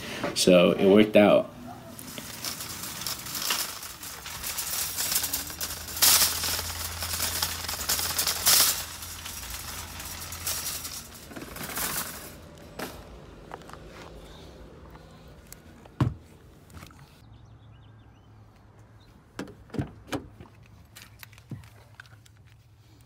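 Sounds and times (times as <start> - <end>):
cart clanking: 1.7 - 13.6
wire shopping cart rattling: 1.8 - 13.2.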